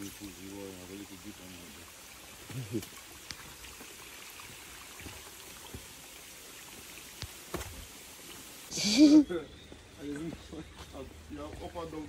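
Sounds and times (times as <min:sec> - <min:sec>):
stream trickling over rocks: 0:00.0 - 0:12.0.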